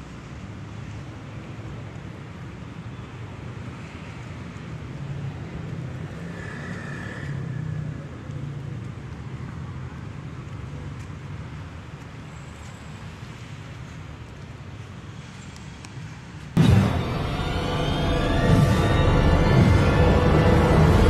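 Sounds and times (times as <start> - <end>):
road traffic rumble: 0.0 - 21.0
brief high tone: 16.6 - 21.0.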